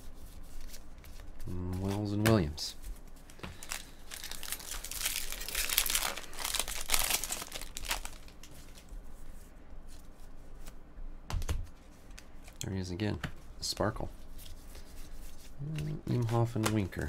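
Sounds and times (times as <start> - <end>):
wrapper crinkling and tearing: 3.2 - 8.9.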